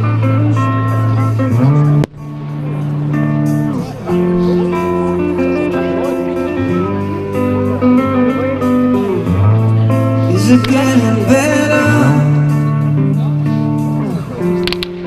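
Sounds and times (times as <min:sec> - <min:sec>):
guitar background music: 0:00.0 - 0:15.0.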